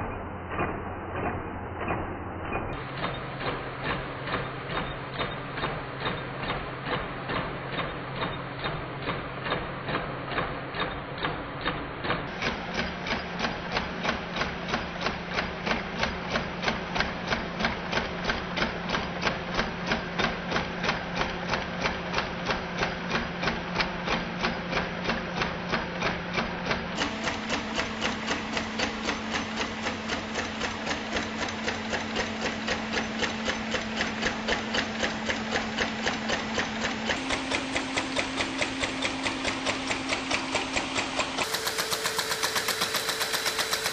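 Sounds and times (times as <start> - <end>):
mechanical knocking: 0.0 - 43.9
electric motor hum: 27.0 - 43.9.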